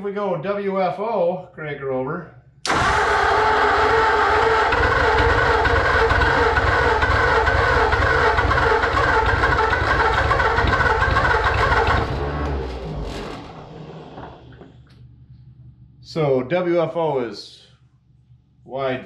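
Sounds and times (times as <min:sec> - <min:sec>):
starter motor cranking engine: 0:02.6 - 0:13.8.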